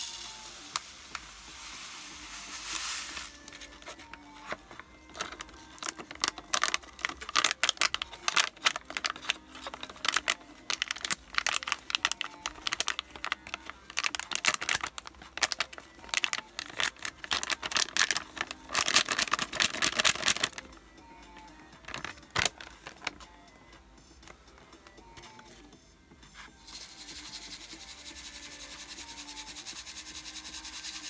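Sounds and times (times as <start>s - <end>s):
gravel rattling onto plastic: 5.1s - 20.6s
plastic bag crinkling: 5.1s - 20.6s, 21.8s - 23.2s.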